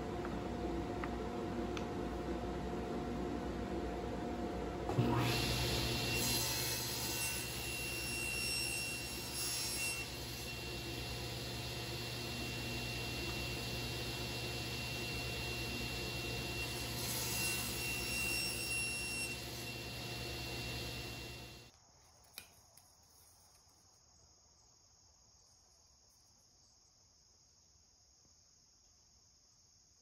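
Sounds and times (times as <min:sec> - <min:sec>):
table saw whining: 0:00.0 - 0:21.7.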